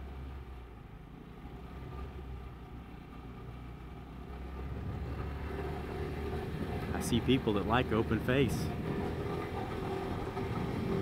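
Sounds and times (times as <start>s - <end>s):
wind and road noise: 0.0s - 11.0s
scooter engine running: 4.7s - 11.0s.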